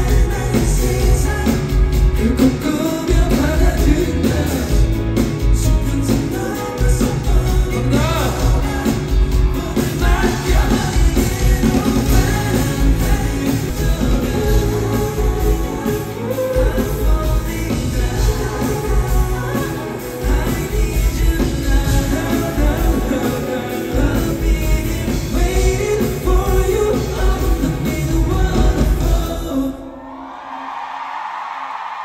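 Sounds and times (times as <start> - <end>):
live pop-rock song with singing: 0.0 - 31.8.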